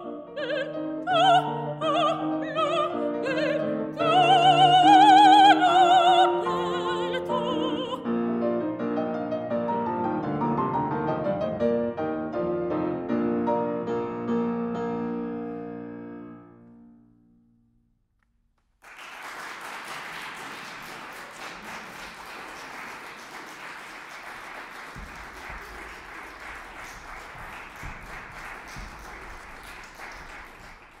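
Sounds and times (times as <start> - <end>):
audience applause: 18.8 - 31.0.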